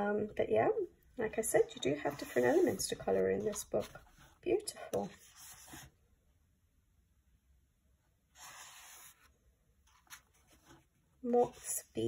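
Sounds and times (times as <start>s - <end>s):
paper page rustling: 9.9s - 10.9s.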